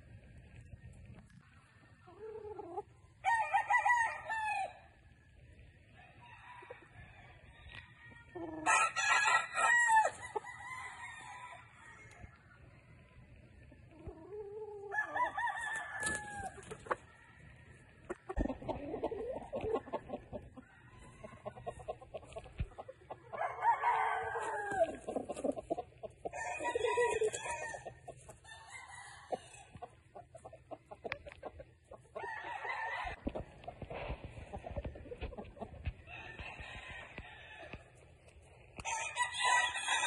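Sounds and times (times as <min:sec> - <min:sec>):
roosters crowing: 0:02.4 - 0:04.9, 0:06.0 - 0:12.4, 0:14.2 - 0:22.4, 0:23.1 - 0:29.8, 0:32.1 - 0:33.6, 0:35.8 - 0:38.0, 0:38.8 - 0:40.0.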